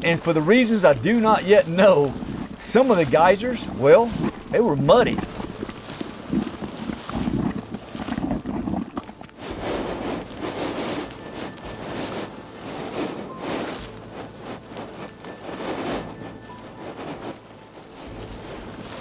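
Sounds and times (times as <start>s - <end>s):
steam vent hissing and rushing: 9.4s - 19.0s.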